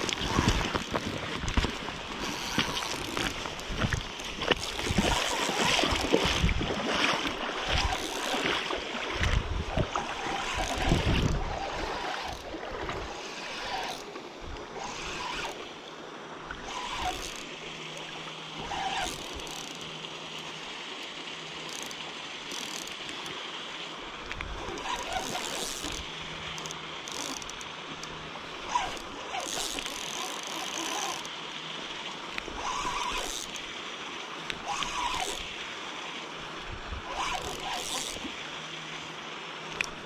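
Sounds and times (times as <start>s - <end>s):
river water rushing: 0.0s - 40.0s
wind gusts on microphone: 9.2s - 12.0s
fishing reel cranking knocks: 21.7s - 23.0s, 26.6s - 27.7s, 37.1s - 38.2s.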